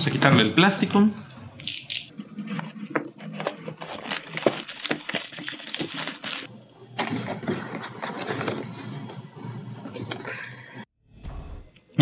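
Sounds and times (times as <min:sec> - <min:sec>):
box handling rustling: 0:02.2 - 0:10.3
plastic shrink wrap crackling: 0:02.6 - 0:06.5.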